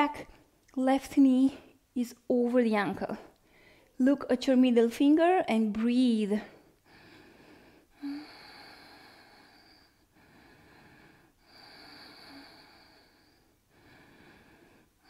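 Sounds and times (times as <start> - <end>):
person breathing slowly: 3.4 - 4.0, 6.5 - 15.0.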